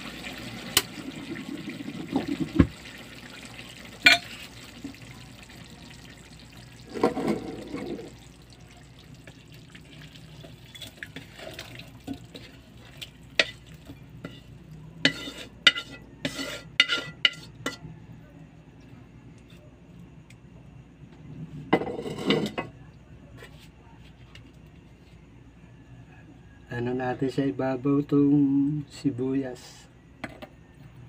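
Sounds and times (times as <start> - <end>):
sauce bubbling in a wok: 0.0 - 17.5
clinks and scrapes into bowl: 6.9 - 8.1, 10.7 - 12.6, 13.3 - 17.9, 21.8 - 22.8.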